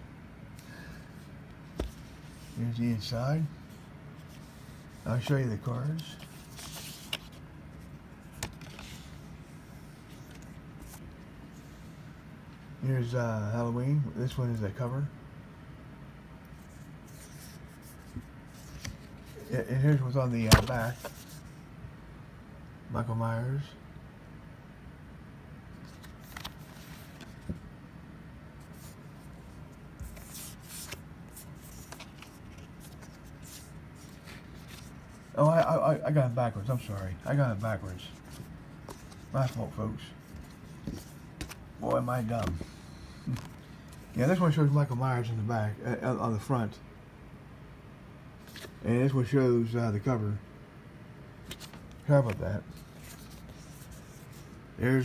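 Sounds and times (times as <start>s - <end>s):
low room hum: 0.0s - 55.0s
card sleeve rustling: 1.6s - 11.8s, 16.6s - 21.6s, 25.8s - 27.6s, 28.6s - 36.0s, 36.6s - 44.3s, 48.4s - 48.8s, 51.4s - 54.6s
soft thumps of cards set down: 20.4s - 21.2s, 40.3s - 41.6s.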